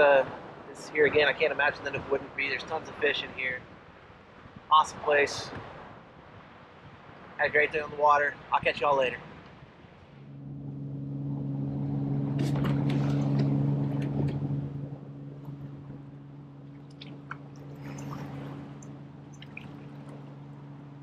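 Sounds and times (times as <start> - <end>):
steady low hum: 10.1 - 21.0
water splashing and dripping: 12.3 - 21.0.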